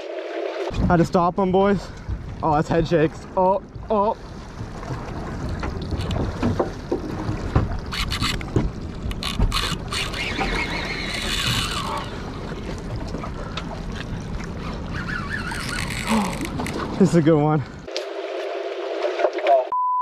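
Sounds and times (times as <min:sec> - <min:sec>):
fishing reel cranking: 0:07.9 - 0:08.5, 0:09.1 - 0:12.2, 0:15.2 - 0:16.8.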